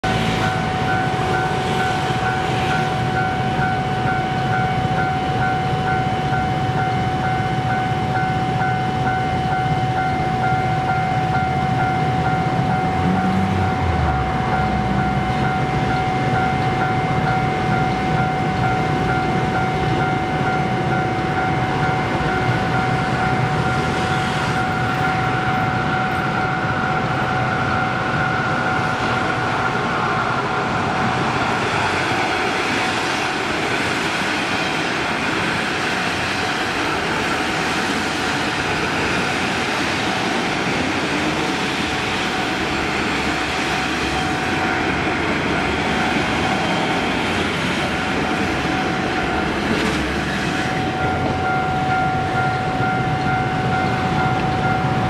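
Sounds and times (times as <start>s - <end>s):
level-crossing warning bell: 0.0s - 55.0s
steady electronic tone: 7.2s - 31.5s.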